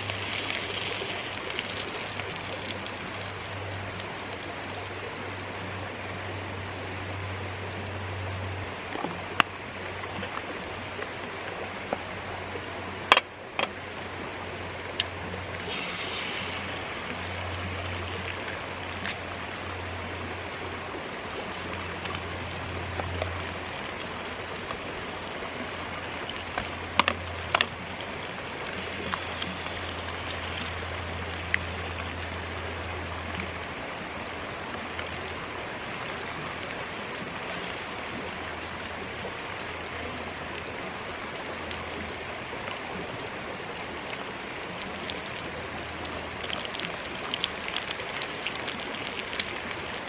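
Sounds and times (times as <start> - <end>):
creek water flowing over stones: 0.0 - 50.0
egg sizzling in hot pan: 15.6 - 18.6.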